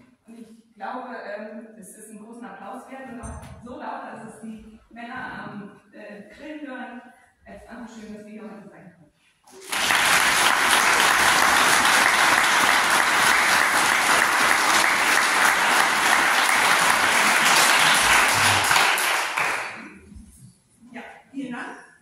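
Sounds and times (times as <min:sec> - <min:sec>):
audience applauding: 0:09.5 - 0:20.0.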